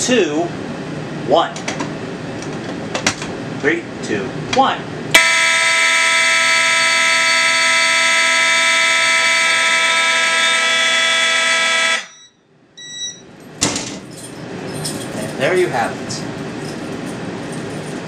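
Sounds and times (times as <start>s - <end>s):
continuous fire alarm tone: 5.1s - 13.3s
short beeps: 12.0s - 13.3s.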